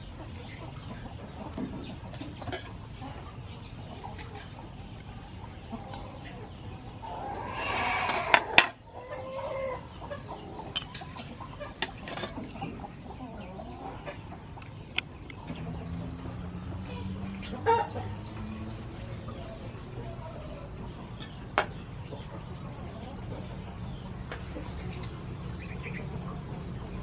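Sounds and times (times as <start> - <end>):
chickens clucking: 0.0 - 27.0
hen drawn-out call: 7.0 - 10.6.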